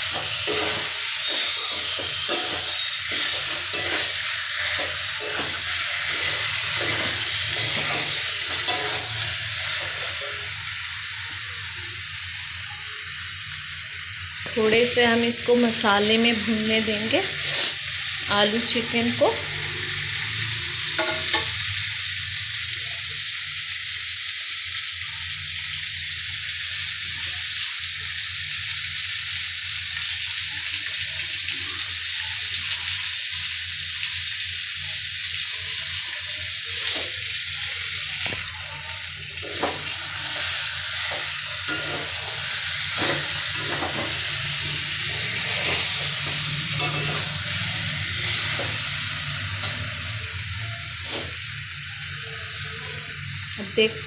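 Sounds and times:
steel spatula scraping a pan: 0.0s - 10.4s, 17.4s - 17.8s, 20.9s - 21.6s, 36.7s - 37.2s, 39.4s - 47.6s
food sizzling in a pan: 0.0s - 54.0s.

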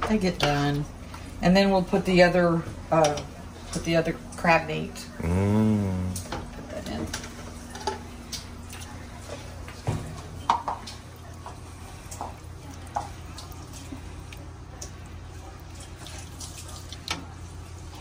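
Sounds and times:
steady low hum: 4.9s - 6.4s
liquid sloshing in a pot: 8.7s - 18.0s.

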